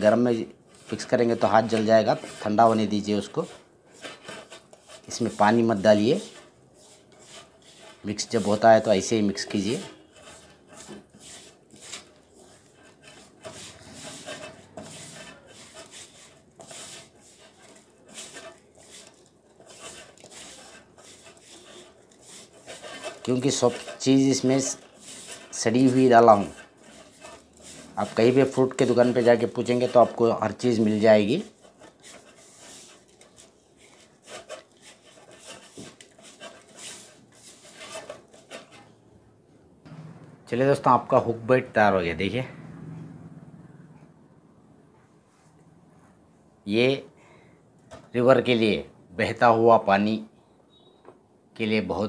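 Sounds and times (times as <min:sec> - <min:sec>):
fingers scraping dough in metal bowl: 0:00.0 - 0:38.9.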